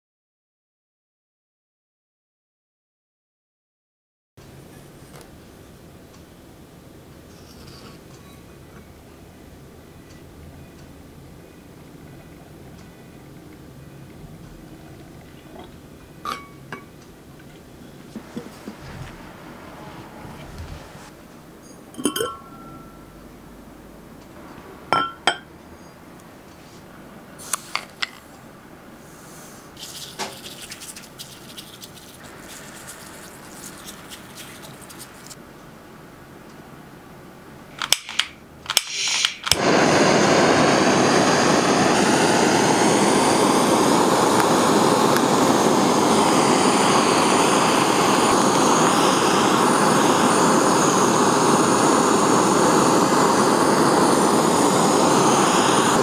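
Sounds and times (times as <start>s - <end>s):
blowtorch rushing hiss: 18.0s - 21.2s, 38.8s - 56.0s
sugar sprinkled with soft rustle: 29.8s - 35.4s
blowtorch igniter clicks: 37.8s - 41.9s, 44.3s - 56.0s.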